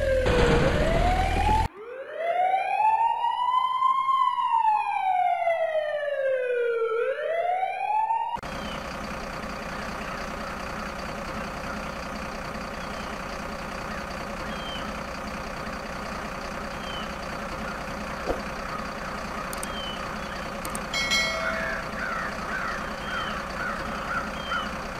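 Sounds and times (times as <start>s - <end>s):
bird chirping calls: 8.5s - 8.9s, 12.6s - 15.0s, 16.6s - 24.8s.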